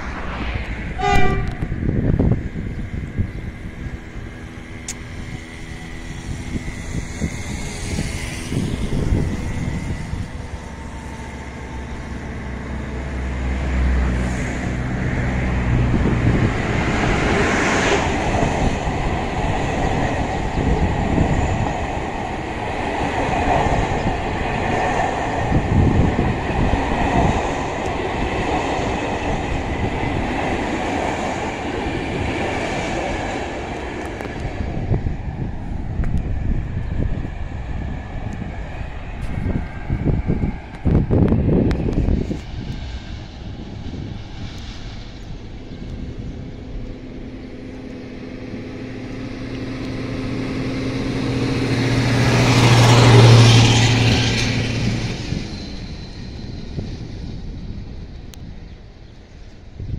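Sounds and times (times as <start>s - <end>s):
locomotive hum: 0.0s - 59.9s
train coaches rumbling: 0.0s - 59.9s.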